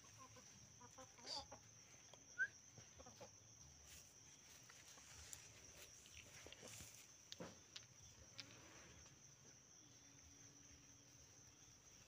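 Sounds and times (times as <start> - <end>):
chicken clucking softly: 0.0 - 3.5
high insect drone: 0.0 - 12.0.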